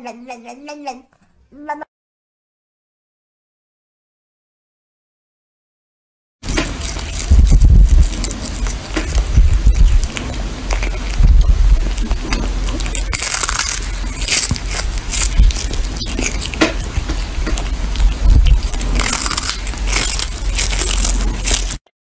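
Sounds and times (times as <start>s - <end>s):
cat chewing fish with wet crunches: 6.4s - 21.9s.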